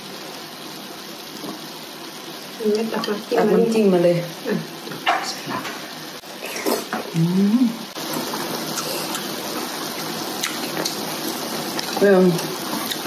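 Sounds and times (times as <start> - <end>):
food sizzling and bubbling: 0.0 - 13.0
person humming while eating: 6.4 - 7.9.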